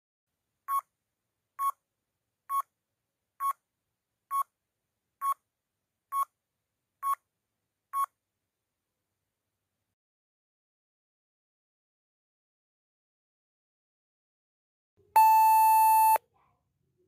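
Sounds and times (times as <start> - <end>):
short electronic beeps: 15.2 - 16.2.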